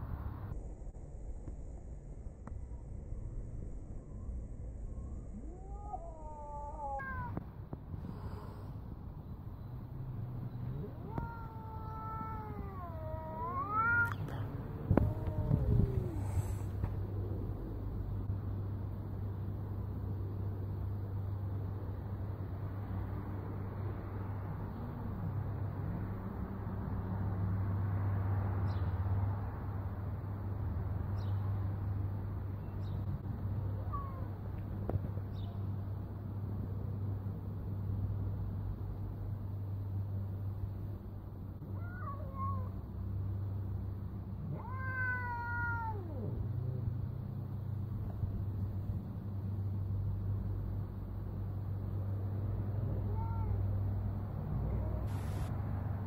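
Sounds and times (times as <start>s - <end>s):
steady low hum: 0.0s - 28.3s, 29.6s - 56.0s
low background rumble: 0.0s - 56.0s
cat yowling: 5.3s - 7.4s, 10.6s - 16.8s, 33.8s - 34.3s, 41.8s - 42.8s, 44.4s - 46.8s, 52.8s - 53.9s.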